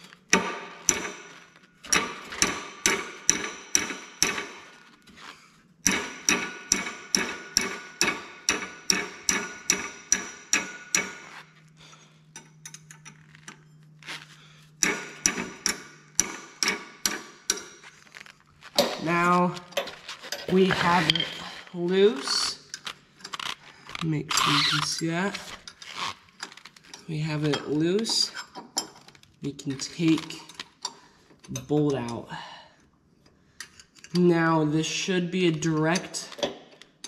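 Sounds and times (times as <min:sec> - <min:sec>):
hammer striking wrench: 0:00.3 - 0:04.7, 0:05.8 - 0:11.4, 0:14.8 - 0:17.9.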